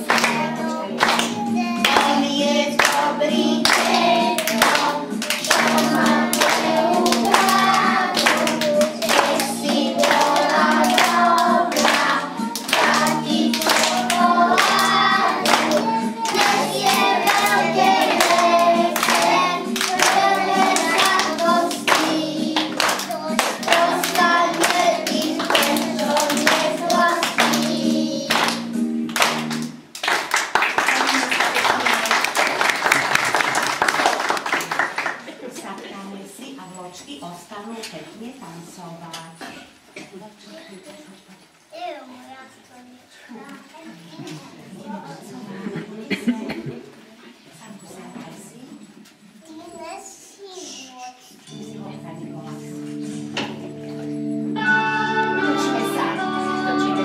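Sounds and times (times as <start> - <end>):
hands clapping: 0.0 - 2.2, 2.8 - 35.3
children singing: 0.0 - 28.8, 54.6 - 57.0
backing music: 0.0 - 29.9, 51.5 - 57.0.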